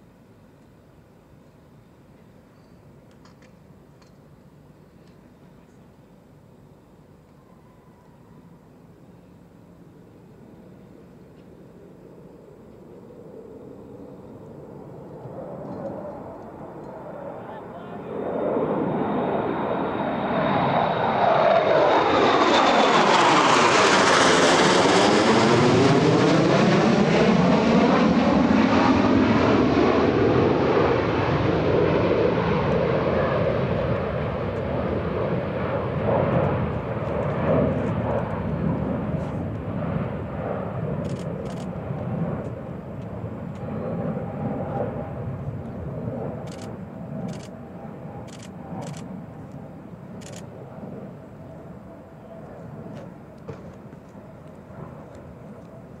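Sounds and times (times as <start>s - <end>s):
jets passing overhead: 11.6s - 56.0s.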